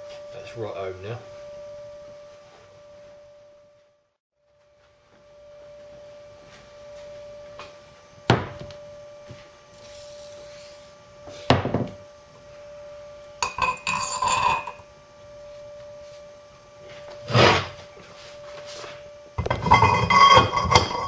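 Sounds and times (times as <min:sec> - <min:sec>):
faint steady tone: 0:00.0 - 0:21.0
metal clinks ringing: 0:13.4 - 0:14.8.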